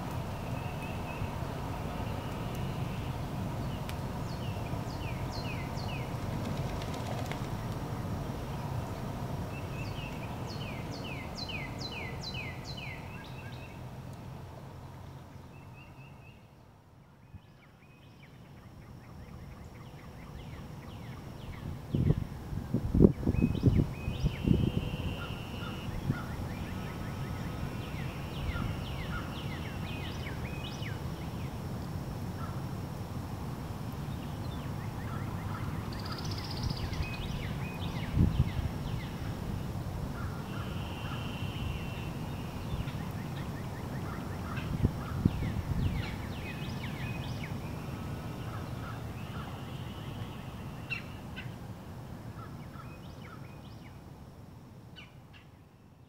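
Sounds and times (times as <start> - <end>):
birds singing and calling: 0.0 - 7.8, 8.4 - 13.9, 23.0 - 31.6, 34.1 - 39.3, 40.2 - 51.6.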